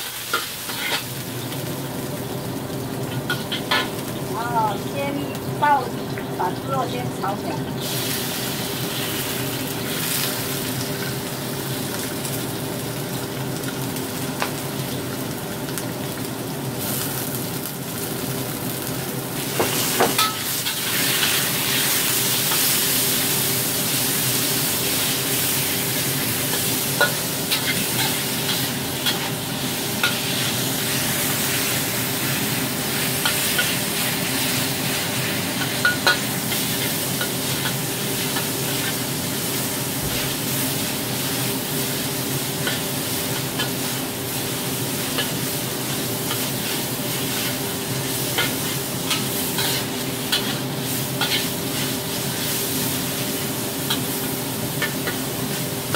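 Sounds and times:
meat sizzling in hot oil: 0.0s - 55.9s
metal spatula scraping a wok: 0.3s - 1.1s, 45.0s - 47.7s, 48.3s - 53.2s.

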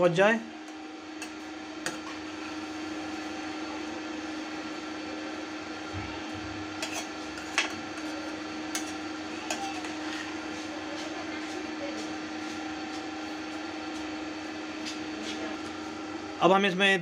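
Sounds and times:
induction cooktop hum and fan: 0.0s - 17.0s
spoon stirring in pan: 0.7s - 3.5s, 6.6s - 15.7s.

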